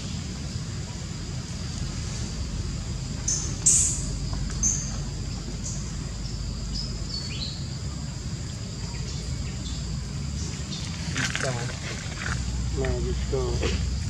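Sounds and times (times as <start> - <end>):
high insect drone: 0.0 - 14.0
low rumble: 0.0 - 14.0
bird chirps: 3.2 - 7.8.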